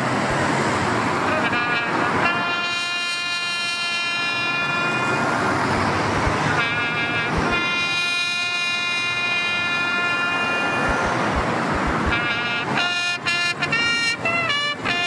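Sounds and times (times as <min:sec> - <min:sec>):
steady traffic noise: 0:00.0 - 0:15.0
military bugle call: 0:01.3 - 0:05.3, 0:06.6 - 0:11.0, 0:12.1 - 0:15.0.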